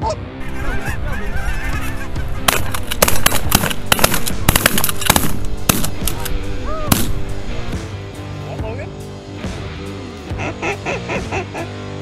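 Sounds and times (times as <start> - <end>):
background music: 0.0 - 12.0
geese honking: 0.4 - 3.2
shotgun shots: 2.4 - 6.3, 6.9 - 7.2.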